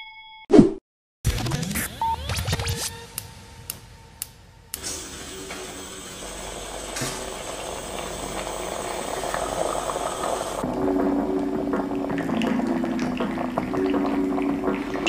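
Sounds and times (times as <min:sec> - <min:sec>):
gas burner hiss: 0:03.2 - 0:10.6
moka pot gurgling: 0:05.1 - 0:15.0.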